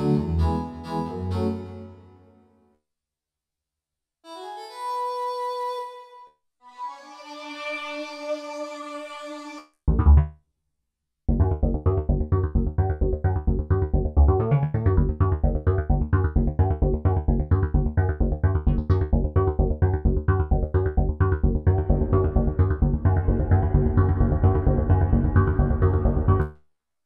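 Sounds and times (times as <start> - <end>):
arpeggiated synthesizer pattern: 11.3 - 26.5
synthesizer bass hit: 11.3 - 26.5.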